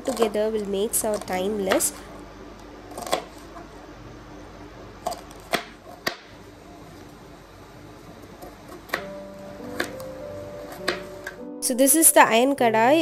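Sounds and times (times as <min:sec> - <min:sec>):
knife chopping on cutting board: 0:10.8 - 0:11.1.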